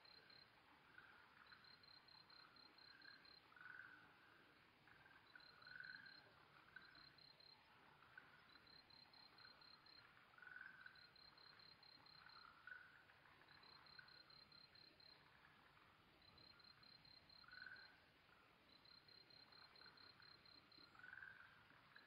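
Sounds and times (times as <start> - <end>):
tree frogs calling: 0.0 - 22.0
cricket chirping pulses: 18.7 - 22.0.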